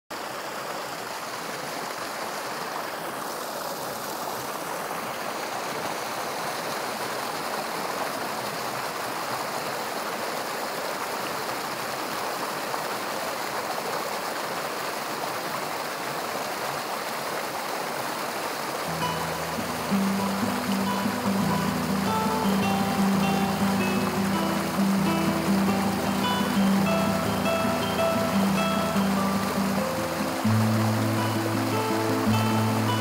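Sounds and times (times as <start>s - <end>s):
stream running over rocks: 0.1s - 33.0s.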